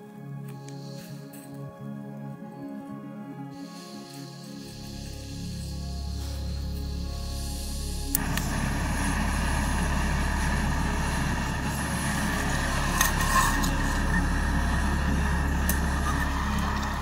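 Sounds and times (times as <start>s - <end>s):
camping stove hissing: 3.6s - 17.0s.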